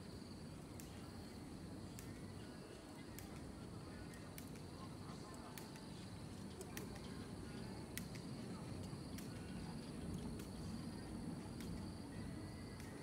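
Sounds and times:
insects buzzing chorus: 0.0 - 13.0
faint sharp clicks: 0.7 - 1.1, 1.9 - 2.3, 3.0 - 7.2, 7.9 - 10.6, 11.5 - 11.9, 12.8 - 13.0.

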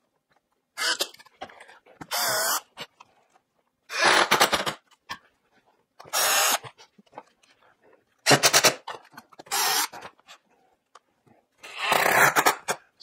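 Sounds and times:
cordless drill driving screws: 9.5 - 10.0.

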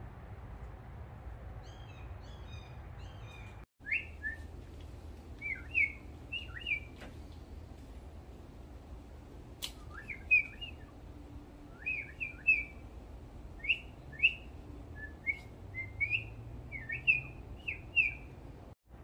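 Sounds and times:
woodpecker chirped calls: 1.6 - 4.5, 5.4 - 7.0, 9.8 - 10.9, 11.8 - 12.8, 15.1 - 18.3
sharp click: 9.6 - 10.6.

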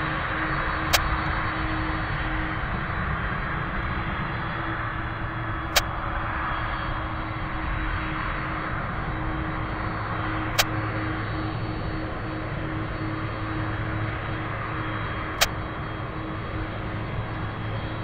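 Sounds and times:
jet engines running: 0.0 - 18.0
sharp clicks: 10.5 - 10.8, 15.4 - 15.6.

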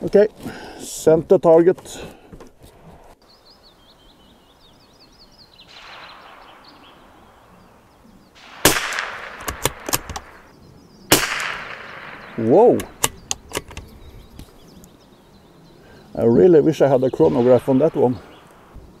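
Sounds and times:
rifle shot crack: 5.7 - 7.6, 8.4 - 10.5, 11.1 - 13.7, 17.2 - 18.7
wind noise on microphone: 6.7 - 14.9, 17.2 - 19.0
rifle bolt clicks: 8.7 - 10.4, 12.8 - 13.9.

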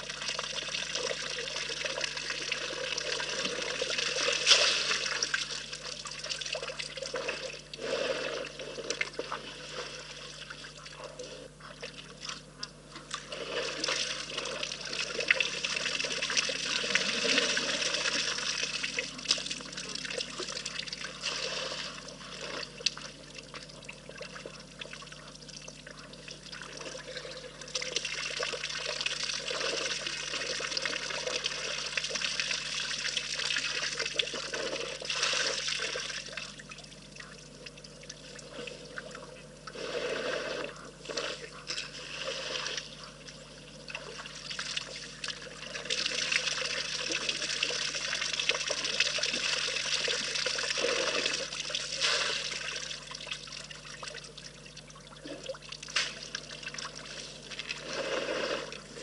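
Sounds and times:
water trickling and splashing: 0.0 - 59.0.

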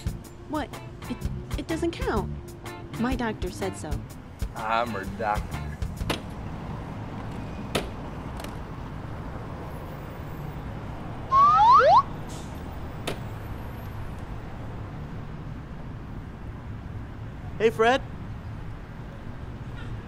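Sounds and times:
upward gliding whistle: 11.3 - 12.1.

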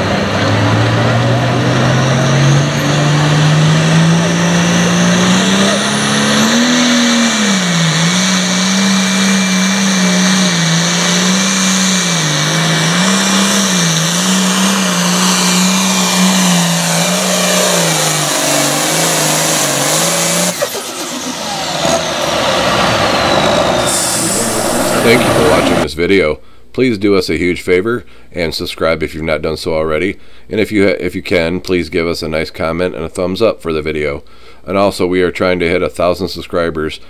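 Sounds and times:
diesel tractor engine under load: 0.0 - 25.9.

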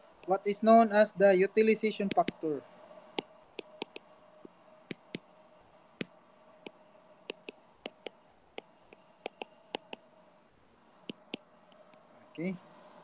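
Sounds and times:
faint steady hum: 0.0 - 13.0
stylus tapping on glass screen: 6.0 - 8.1, 8.9 - 10.0.

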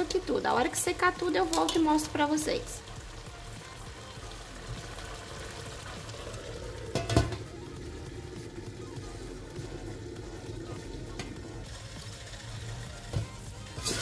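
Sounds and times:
food bubbling and sizzling: 0.0 - 14.0
metal lid clanking on pan: 1.5 - 1.9, 6.9 - 7.5.

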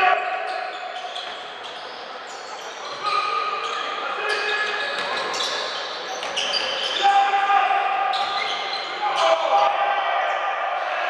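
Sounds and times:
players' voices echoing: 0.0 - 11.0.

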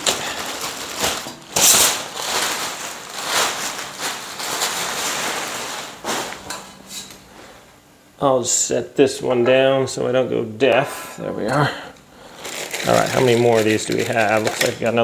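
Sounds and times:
packaging rustling and crackling: 0.0 - 7.1, 12.3 - 15.0.

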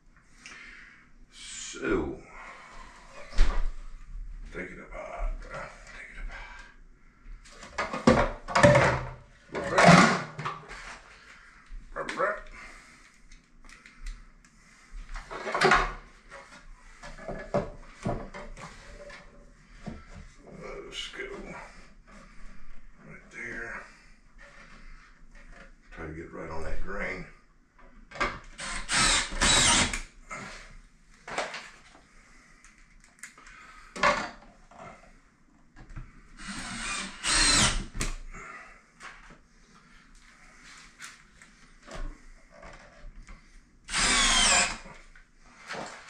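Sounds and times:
cordless drill driving screws: 28.6 - 30.1, 36.4 - 38.0, 43.9 - 45.0.

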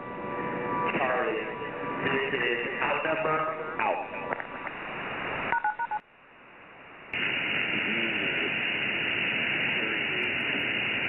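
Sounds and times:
radio static hiss: 7.1 - 11.0
faint radio voice: 7.6 - 8.7, 9.6 - 10.8.

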